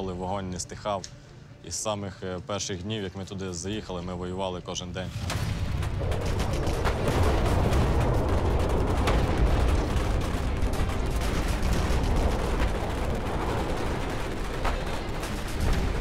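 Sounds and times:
sharp gunshots: 0:05.1 - 0:16.0
distant gunfire rumble: 0:05.3 - 0:16.0.

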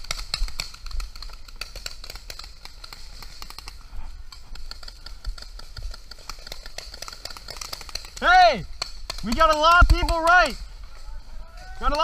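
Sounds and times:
paintball markers popping: 0:04.4 - 0:10.6.

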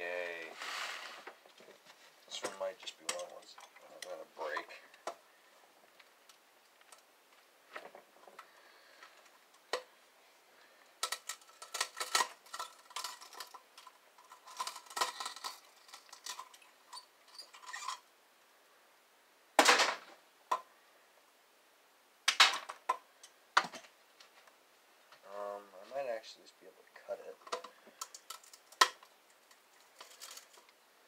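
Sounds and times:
metal tools clinking: 0:02.3 - 0:04.8, 0:11.0 - 0:18.0
metal parts clattering: 0:11.0 - 0:18.0, 0:27.5 - 0:29.0, 0:29.8 - 0:30.7.

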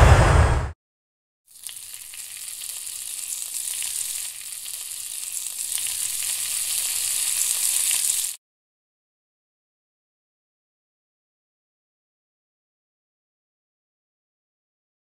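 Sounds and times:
sizzling like food frying: 0:01.5 - 0:08.4.

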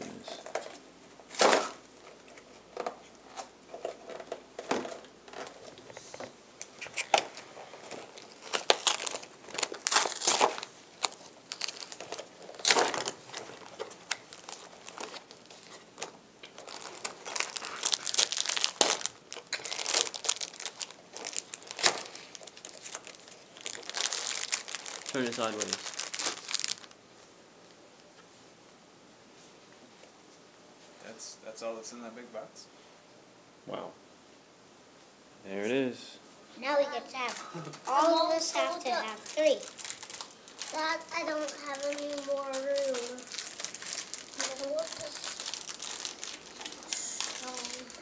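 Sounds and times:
paper wrapping crinkling: 0:06.7 - 0:27.0, 0:37.8 - 0:48.0.

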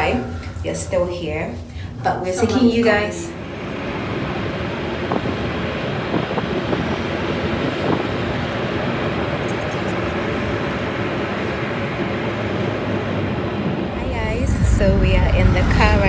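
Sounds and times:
engine and tyre rumble: 0:03.5 - 0:16.0.

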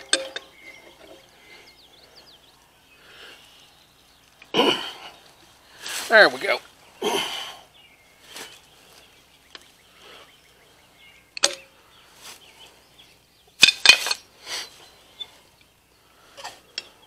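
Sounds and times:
metal tools clinking: 0:00.0 - 0:01.3
soft rustling: 0:05.2 - 0:07.0, 0:08.0 - 0:09.4, 0:12.0 - 0:12.9.

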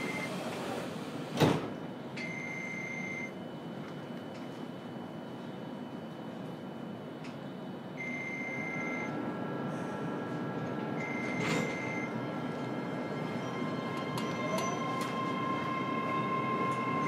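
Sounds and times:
train running noise: 0:09.2 - 0:17.0.

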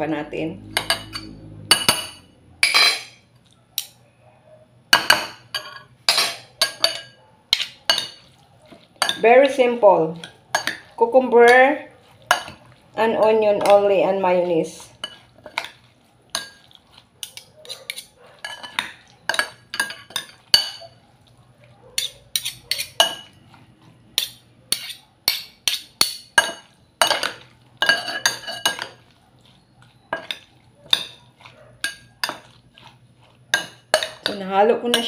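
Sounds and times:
metal utensil clinking on glass bowl: 0:00.7 - 0:03.2, 0:05.0 - 0:08.3, 0:09.0 - 0:09.4, 0:10.2 - 0:11.7, 0:12.3 - 0:12.6, 0:13.6 - 0:13.9, 0:15.0 - 0:21.0, 0:22.0 - 0:23.4, 0:24.2 - 0:29.0, 0:30.1 - 0:31.2, 0:31.8 - 0:32.6, 0:33.5 - 0:35.0.

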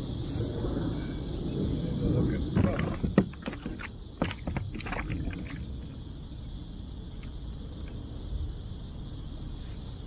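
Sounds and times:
wind rumble on microphone: 0:00.0 - 0:10.0.

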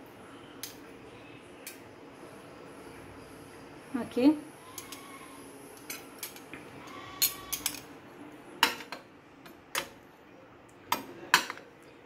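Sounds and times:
spoon and glass bowls clinking: 0:05.8 - 0:07.9.

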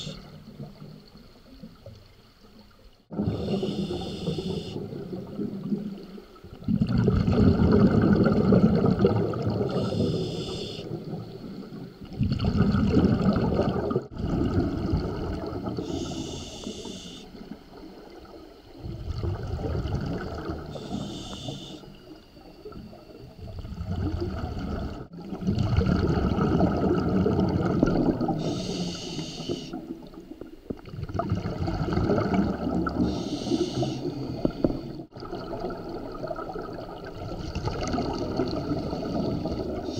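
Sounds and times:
regulator inhale hiss: 0:00.0 - 0:00.3, 0:03.3 - 0:04.9, 0:09.7 - 0:11.0, 0:15.8 - 0:17.5, 0:20.7 - 0:22.2, 0:28.4 - 0:29.9, 0:33.0 - 0:35.1
exhaled bubbles rushing: 0:03.1 - 0:16.4, 0:17.3 - 0:21.2, 0:22.0 - 0:39.9.

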